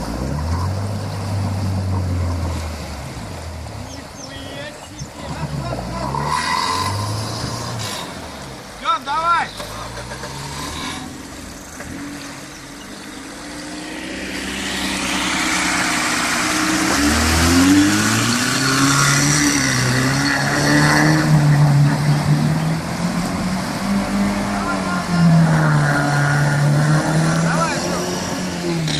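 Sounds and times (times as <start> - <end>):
water splashing: 0.0 - 28.9
car engine revving: 5.3 - 8.8, 9.5 - 28.9.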